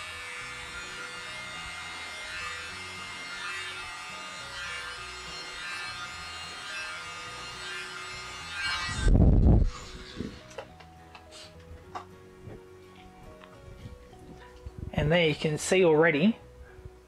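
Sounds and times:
electric blower whining: 0:00.0 - 0:12.7
background music: 0:00.0 - 0:17.0.

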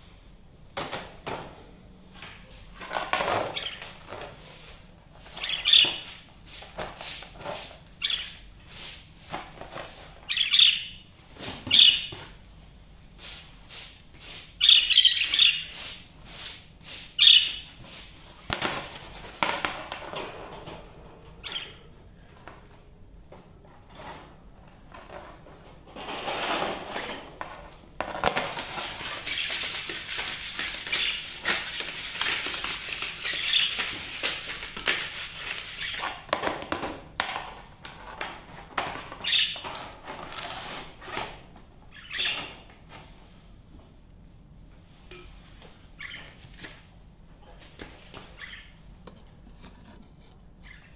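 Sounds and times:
budgerigars chirping: 0:05.3 - 0:06.1, 0:08.0 - 0:08.4, 0:10.3 - 0:11.0, 0:11.7 - 0:12.1, 0:14.6 - 0:15.8, 0:17.2 - 0:17.7, 0:21.4 - 0:21.8, 0:33.2 - 0:33.8, 0:39.2 - 0:39.6, 0:41.9 - 0:42.5, 0:46.0 - 0:46.3, 0:48.4 - 0:48.7.

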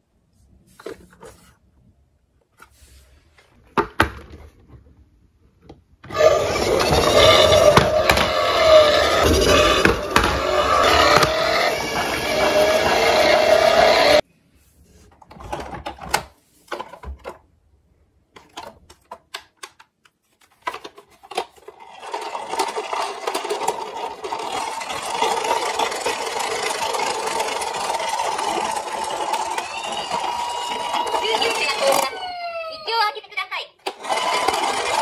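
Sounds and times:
toy mechanical whirring: 0:06.1 - 0:14.2, 0:20.8 - 0:32.6, 0:33.8 - 0:35.0.

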